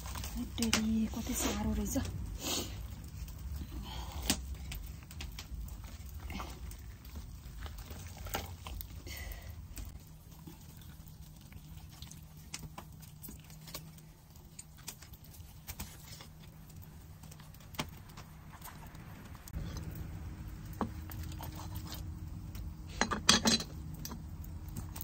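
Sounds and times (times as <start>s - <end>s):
faint low hum: 0.0s - 25.0s.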